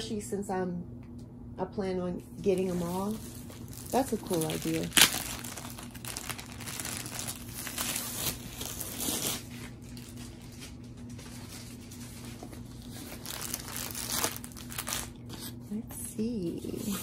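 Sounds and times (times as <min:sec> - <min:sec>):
plastic wrap crinkling: 0:02.4 - 0:15.5.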